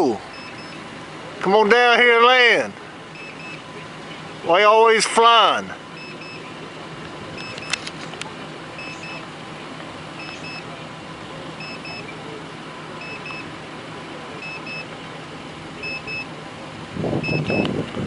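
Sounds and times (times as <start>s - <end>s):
electronic double beep: 0.3s - 0.8s, 3.2s - 3.6s, 6.0s - 6.5s, 8.8s - 9.2s, 10.2s - 10.7s, 11.6s - 12.1s, 14.4s - 14.9s, 15.8s - 16.3s, 17.2s - 17.7s.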